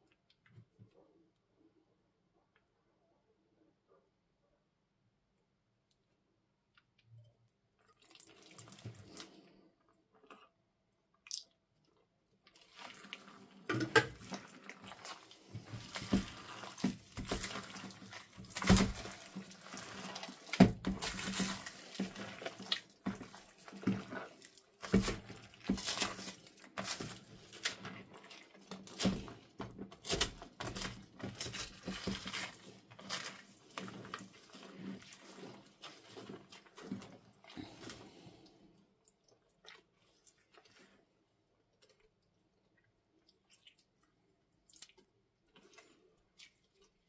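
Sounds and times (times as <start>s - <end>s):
slime squishing with beads: 12.4s - 38.1s.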